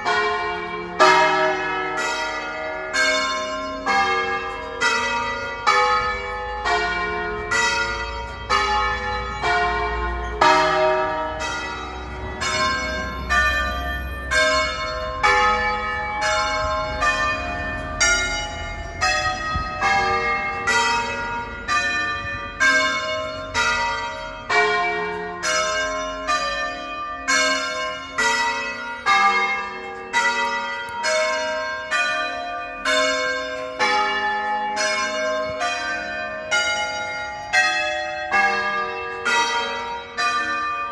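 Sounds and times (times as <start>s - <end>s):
church bells ringing: 0.0s - 40.9s.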